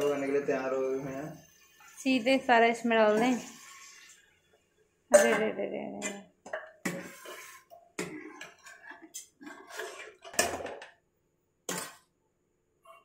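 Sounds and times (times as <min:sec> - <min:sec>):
metal ladle clanking on pots: 0:08.0 - 0:10.9, 0:11.7 - 0:12.0.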